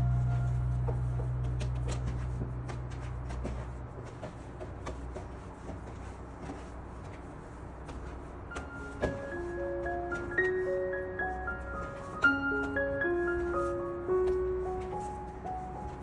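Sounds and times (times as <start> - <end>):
background music: 0.0 - 3.3, 8.5 - 16.0
hands patting sticky dough: 1.0 - 10.7.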